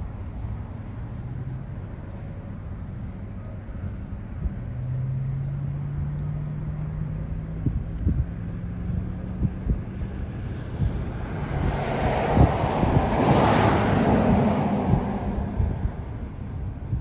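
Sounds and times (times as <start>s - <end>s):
strong wind buffeting microphone: 7.1s - 17.0s.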